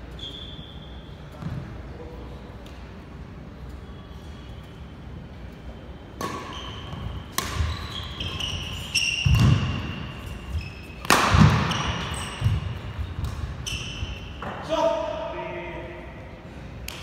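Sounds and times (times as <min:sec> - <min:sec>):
sneakers squeaking on floor: 0:00.0 - 0:01.8, 0:05.9 - 0:14.7
rackets hitting shuttlecock: 0:06.2 - 0:10.3, 0:10.9 - 0:14.6.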